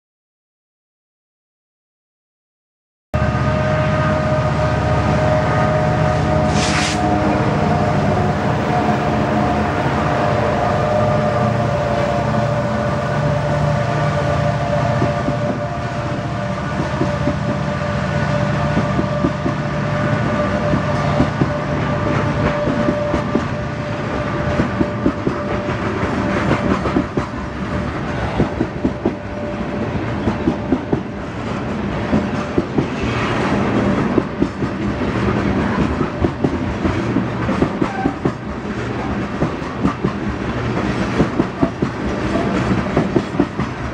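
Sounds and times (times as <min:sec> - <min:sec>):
locomotive engine drone: 0:03.2 - 0:43.9
train wheels clicking over rail joints: 0:24.2 - 0:29.2, 0:30.0 - 0:43.9.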